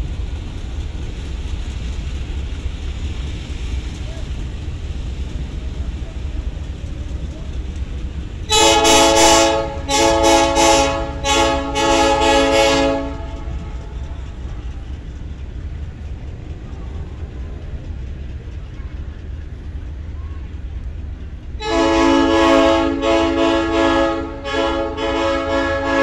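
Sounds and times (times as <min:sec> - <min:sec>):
train rumbling by: 0:00.0 - 0:26.0
train air horn blasts: 0:08.5 - 0:13.7, 0:21.6 - 0:26.0.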